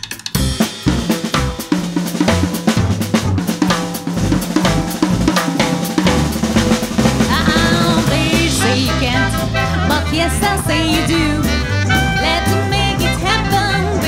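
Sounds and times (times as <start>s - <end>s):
drum kit: 0.0s - 14.0s
jazz band playing: 0.0s - 14.0s
woman singing: 7.2s - 14.0s.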